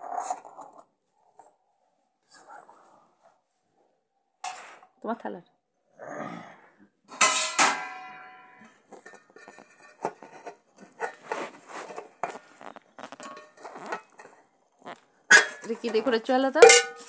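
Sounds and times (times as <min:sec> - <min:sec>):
metal tin clinking in pot: 0:07.1 - 0:11.3, 0:13.0 - 0:14.4, 0:15.3 - 0:17.0
steel lid ringing: 0:07.2 - 0:09.2, 0:16.6 - 0:17.0.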